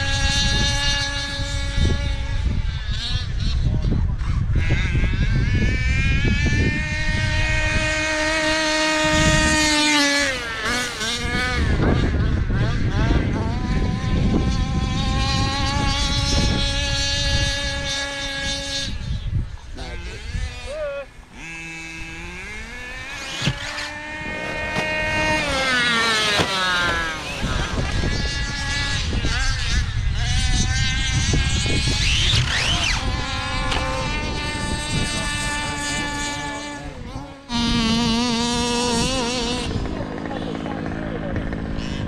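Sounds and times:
rc car motor whining: 0:00.0 - 0:42.0
tyres rumbling over rough ground: 0:31.5 - 0:42.0.

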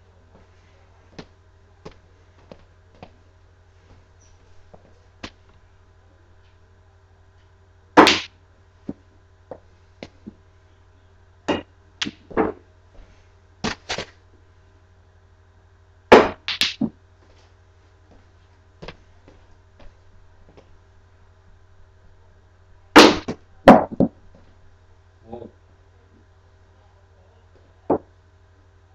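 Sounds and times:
pool balls clacking: 0:08.0 - 0:10.4, 0:11.5 - 0:12.7, 0:16.1 - 0:17.0, 0:23.0 - 0:24.3.

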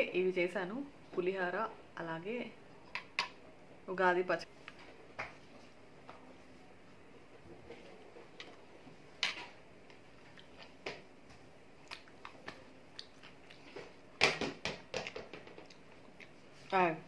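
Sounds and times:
person chewing: 0:11.8 - 0:13.8.

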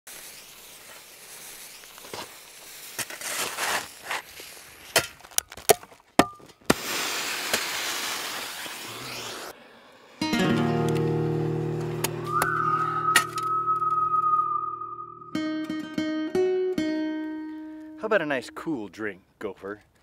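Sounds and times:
steady hiss: 0:00.1 - 0:04.8.

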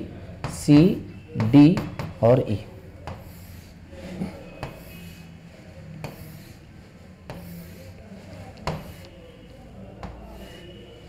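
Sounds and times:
marker rubbing on writing board: 0:03.1 - 0:03.8, 0:05.9 - 0:09.2.

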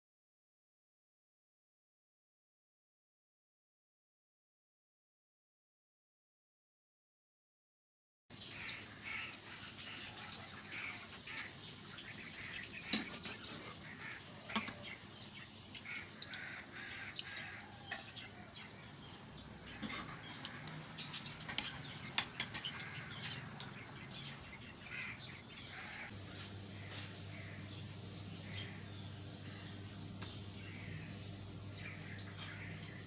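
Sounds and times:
oil sizzling in frying pan: 0:08.3 - 0:30.4.

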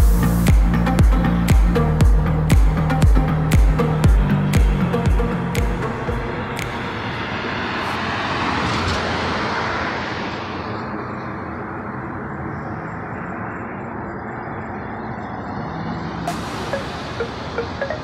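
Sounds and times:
low traffic hum: 0:00.0 - 0:18.0
car passing: 0:05.3 - 0:18.0.

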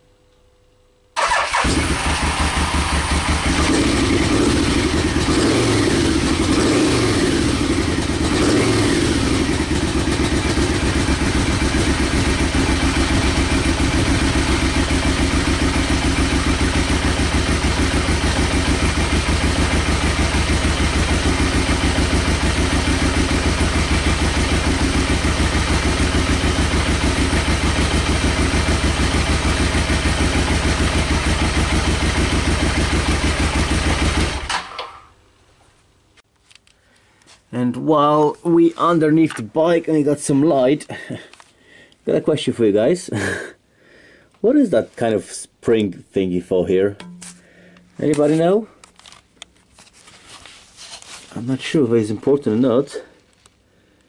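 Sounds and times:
motorcycle engine revving and idling: 0:01.2 - 0:34.7.

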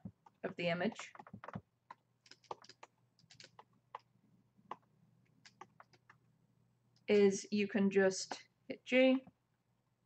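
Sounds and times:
computer keyboard clicking: 0:00.2 - 0:04.1, 0:04.7 - 0:06.2.

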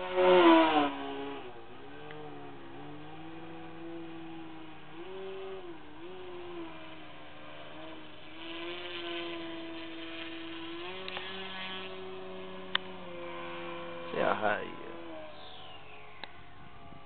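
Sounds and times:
model airplane motor droning: 0:00.0 - 0:17.0.

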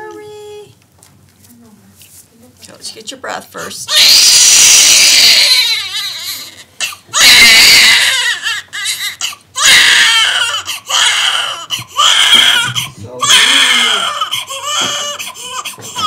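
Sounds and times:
newborn baby crying: 0:03.9 - 0:16.0.

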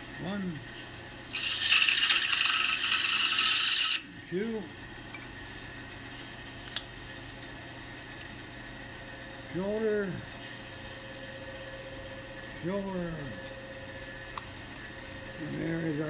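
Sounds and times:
quiet steady hum: 0:00.0 - 0:16.0
scroll saw cutting wood: 0:01.3 - 0:04.1.

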